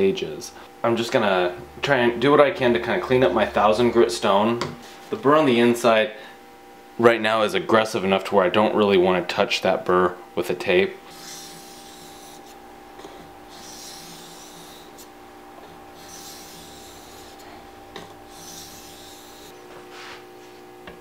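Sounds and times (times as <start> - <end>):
scraping on sharpening stone: 11.1 - 12.6, 13.5 - 15.1, 16.0 - 19.5.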